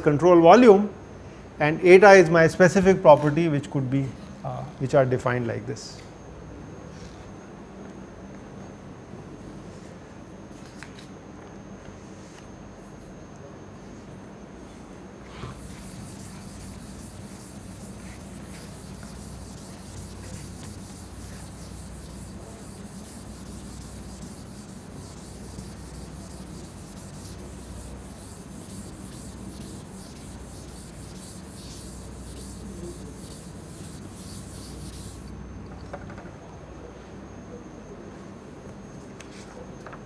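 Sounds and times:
duster scrubbing a chalkboard: 0:15.5 - 0:35.3
low steady hum: 0:15.5 - 0:35.7.

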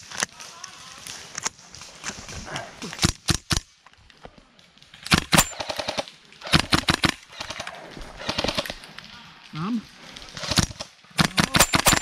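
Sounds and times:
airsoft guns firing bursts: 0:05.0 - 0:08.8, 0:10.3 - 0:12.0.

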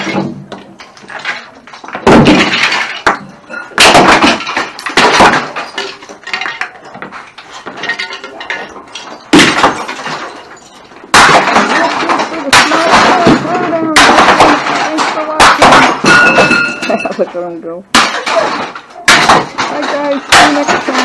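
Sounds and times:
heavy blows smashing plastic: 0:00.0 - 0:17.2, 0:17.9 - 0:21.0.

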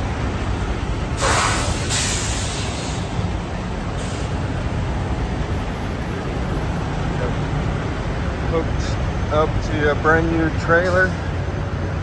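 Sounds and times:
diesel truck engines idling: 0:00.0 - 0:12.0
air hiss: 0:01.2 - 0:03.1.

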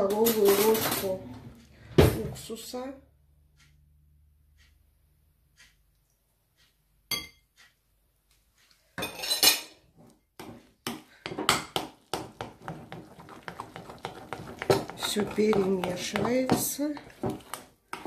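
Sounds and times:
utensil scraping glass bowl: 0:12.1 - 0:18.0.

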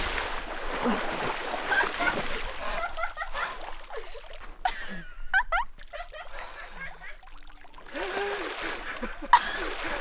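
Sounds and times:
water splashing and sloshing: 0:00.0 - 0:10.0
water dripping and trickling: 0:05.8 - 0:08.6.

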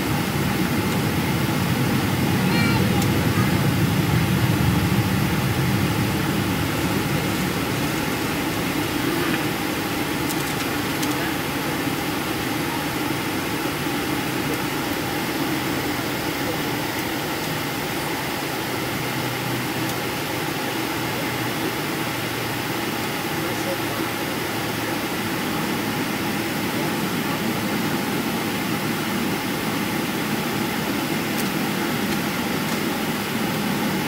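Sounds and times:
low hum: 0:00.0 - 0:17.0
jet engines at low power: 0:00.0 - 0:34.0.

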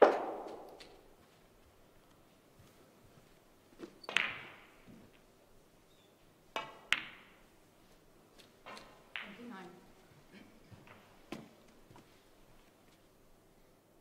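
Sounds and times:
cue tip tapping ball: 0:00.0 - 0:01.0, 0:04.1 - 0:04.7, 0:06.5 - 0:07.4
snooker balls clicking: 0:00.0 - 0:01.0, 0:03.8 - 0:05.3, 0:06.5 - 0:07.5, 0:08.4 - 0:09.5.

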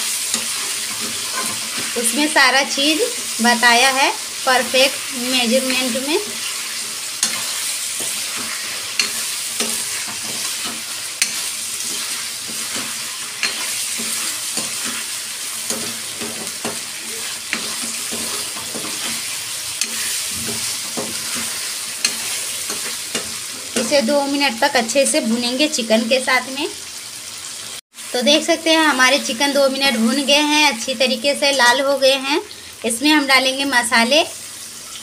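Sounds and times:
chicken sizzling in hot oil: 0:00.0 - 0:35.0
metal ladle scraping a pan: 0:00.2 - 0:02.1, 0:05.5 - 0:24.0.

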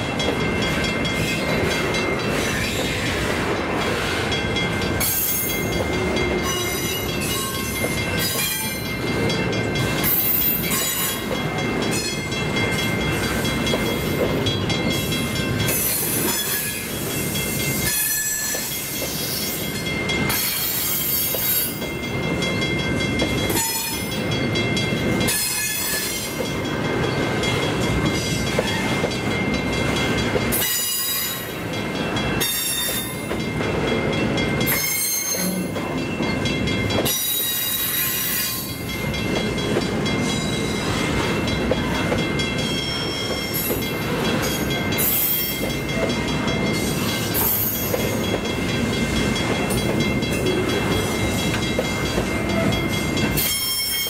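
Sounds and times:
freight wagons rumbling on rails: 0:00.0 - 0:54.0.

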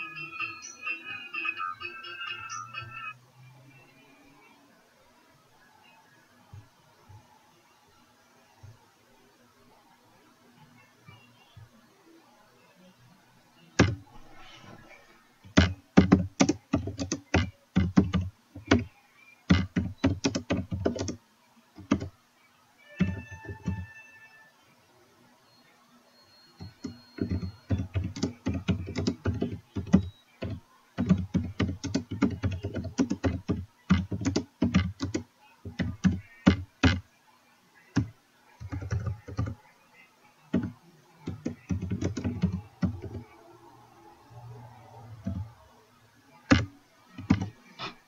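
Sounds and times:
typing on computer keyboard: 0:15.5 - 0:18.9, 0:19.5 - 0:21.2, 0:21.8 - 0:22.1, 0:23.0 - 0:23.9, 0:26.6 - 0:37.0, 0:38.0 - 0:39.6, 0:40.6 - 0:43.3, 0:45.2 - 0:45.5, 0:46.5 - 0:47.5.

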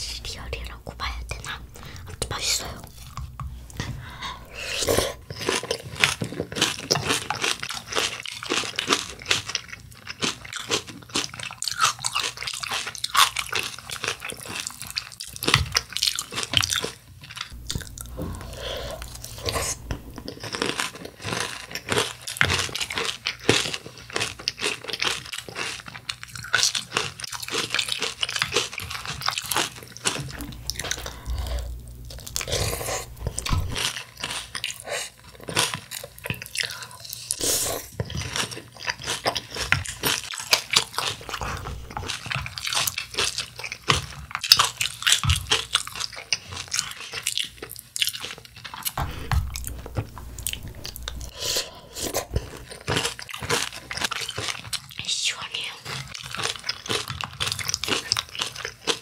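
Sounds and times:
chewing crunchy cereal: 0:00.4 - 0:59.0.

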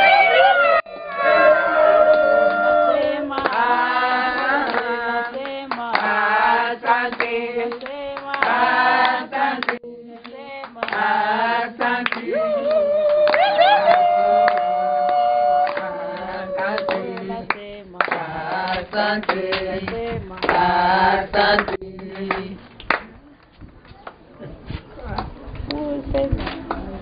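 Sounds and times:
women singing together: 0:00.9 - 0:14.2, 0:14.8 - 0:22.7
hand clapping: 0:02.1 - 0:06.2, 0:07.1 - 0:11.1, 0:11.8 - 0:20.7, 0:21.4 - 0:23.2.

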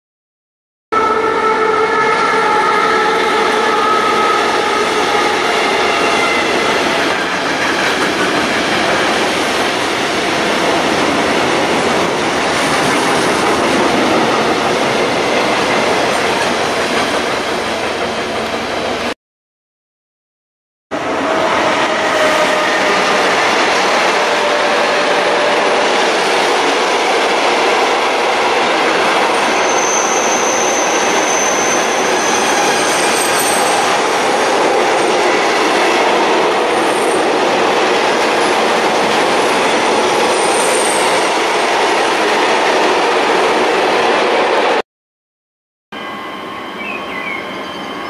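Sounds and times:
train wheels rumbling on rails: 0:03.0 - 0:19.1, 0:21.0 - 0:44.4
high wheel squeal: 0:29.3 - 0:34.2, 0:46.0 - 0:48.0.

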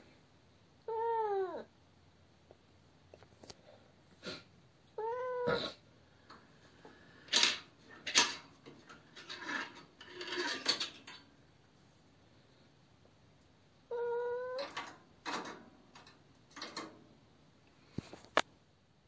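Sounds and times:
cat meowing: 0:00.8 - 0:01.7, 0:05.0 - 0:05.8, 0:13.9 - 0:14.8
scraping noises: 0:07.3 - 0:11.1.

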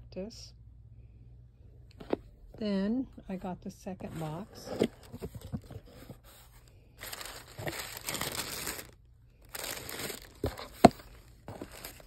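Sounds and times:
tissue paper crinkling: 0:06.2 - 0:12.0.

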